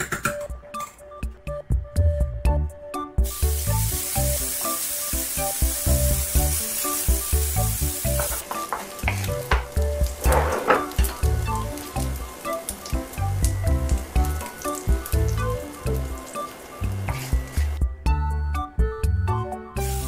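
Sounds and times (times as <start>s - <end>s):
background music with beat: 0.0s - 20.0s
bacon sizzling in skillet: 3.2s - 17.8s, 19.8s - 20.0s
wooden spoon scraping skillet: 10.2s - 11.2s.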